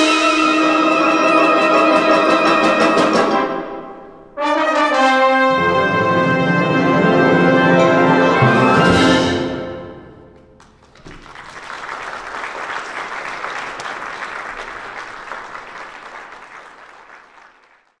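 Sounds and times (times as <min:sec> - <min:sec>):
wind band chord: 0:00.0 - 0:10.5
audience applauding: 0:10.4 - 0:18.0.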